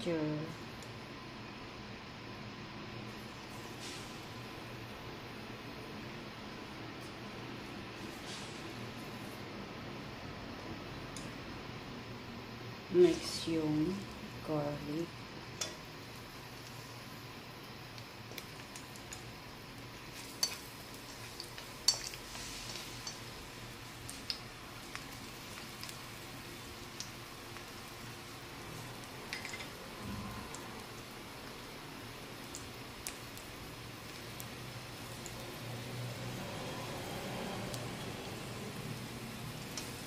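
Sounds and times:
garlic sizzling in oil: 2.9 - 40.0.

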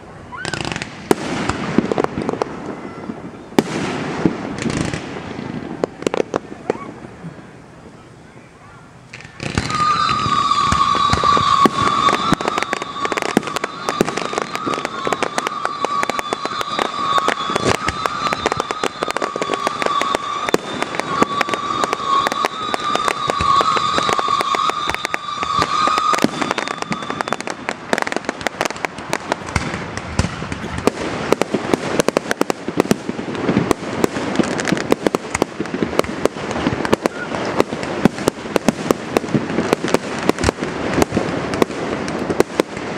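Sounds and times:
fireworks crackling and popping: 0.0 - 42.9
deep firework bangs: 0.5 - 6.9, 9.2 - 42.9
high whistle: 9.4 - 27.7.

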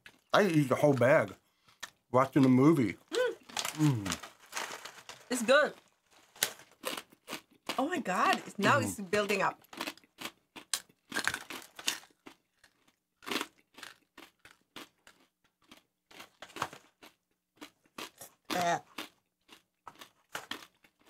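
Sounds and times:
person humming: 3.1 - 4.2, 8.6 - 9.0
crunching corn nuts: 3.4 - 7.8, 9.6 - 21.0.

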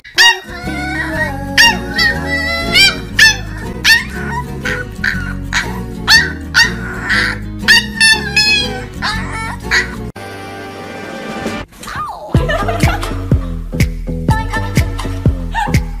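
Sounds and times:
puppy yapping: 0.1 - 10.0.

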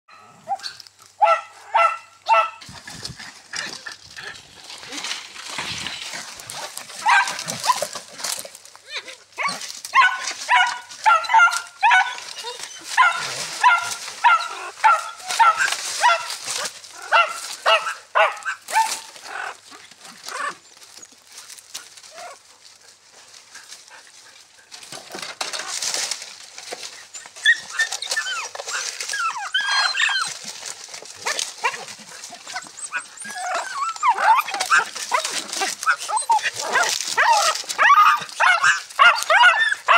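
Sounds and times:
dogs yelping and whining: 0.1 - 2.6, 5.8 - 8.1, 8.8 - 19.6, 26.8 - 39.9
dogs yipping: 0.1 - 2.7, 5.8 - 8.0, 8.8 - 19.6, 27.0 - 39.9.

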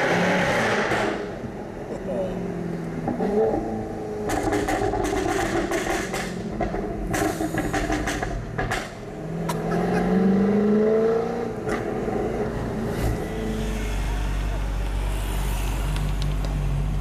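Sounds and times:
car engine accelerating: 0.0 - 17.0
exhaust pops and crackles: 4.2 - 9.7.

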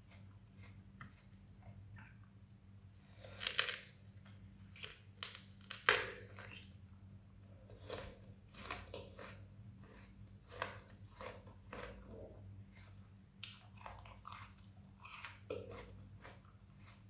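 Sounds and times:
crunchy fruit bites and chewing: 3.1 - 6.8, 7.6 - 17.0.

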